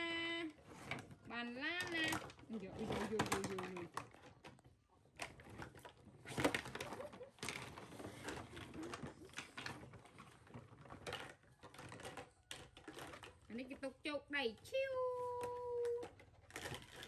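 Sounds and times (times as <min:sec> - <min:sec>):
plastic toy bowls clacking on table: 0:06.6 - 0:13.5.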